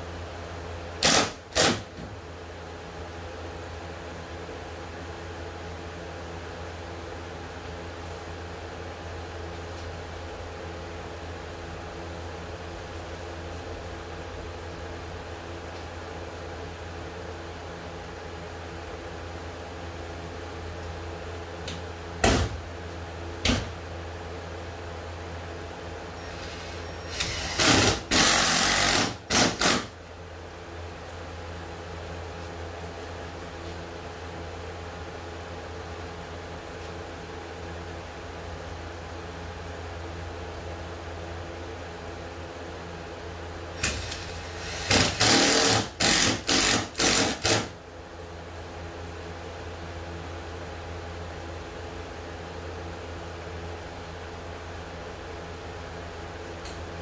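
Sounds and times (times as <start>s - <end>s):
steady hum: 0.0s - 57.0s
cordless drill driving screws: 26.3s - 29.9s, 43.8s - 47.7s.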